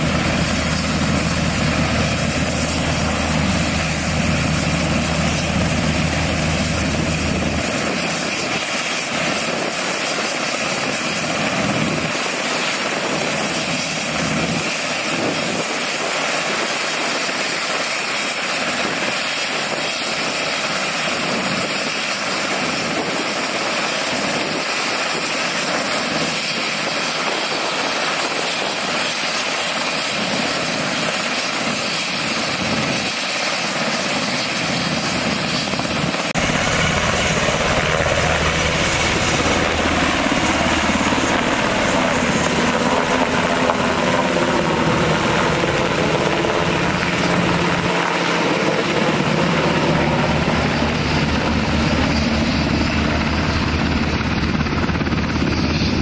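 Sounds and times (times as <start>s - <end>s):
helicopter rotors and engines: 0.0s - 56.0s.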